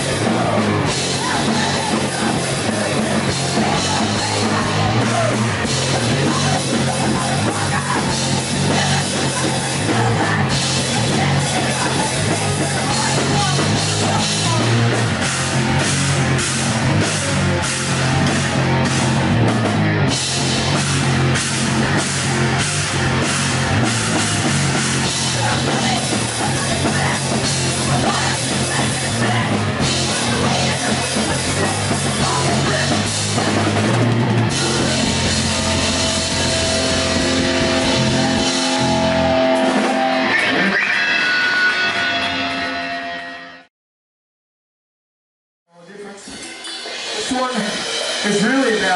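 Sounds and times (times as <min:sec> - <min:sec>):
drum kit: 0:00.0 - 0:43.6, 0:46.0 - 0:48.9
electric guitar: 0:00.0 - 0:43.7
person singing into microphone: 0:06.0 - 0:14.8, 0:25.3 - 0:39.2.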